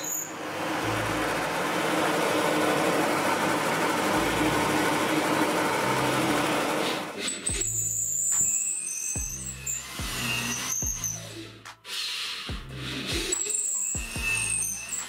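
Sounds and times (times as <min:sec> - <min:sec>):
drill press hum: 0:00.0 - 0:11.6.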